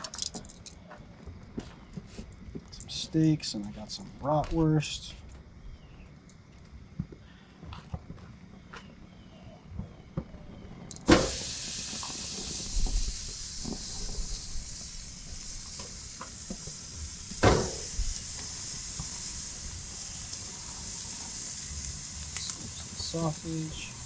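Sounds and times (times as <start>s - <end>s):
meat sizzling on a grill: 11.1s - 24.0s.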